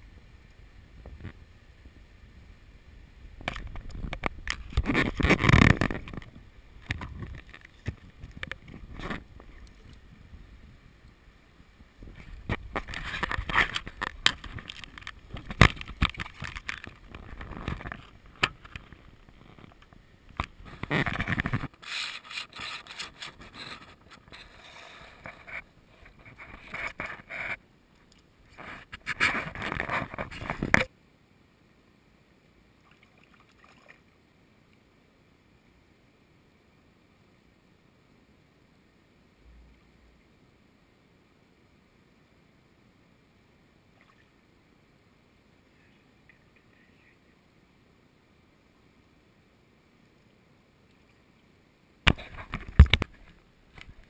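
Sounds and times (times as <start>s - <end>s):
scrapes and knocks on rocks: 3.4s - 9.9s, 12.0s - 27.6s, 28.5s - 30.9s, 52.1s - 54.0s
water splashing in stream: 32.8s - 34.2s.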